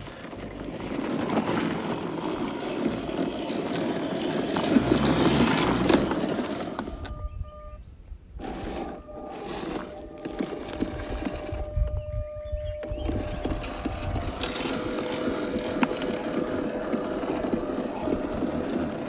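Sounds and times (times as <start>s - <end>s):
toy car tyres crunching on dirt: 0.0s - 7.1s, 8.4s - 19.0s
drivetrain clicks and clatter: 9.6s - 19.0s.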